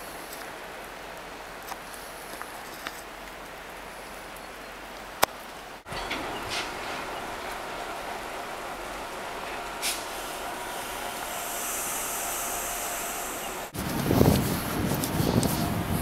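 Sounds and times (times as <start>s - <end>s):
train wheels on rails: 0.0s - 16.0s
high hiss: 7.9s - 13.8s.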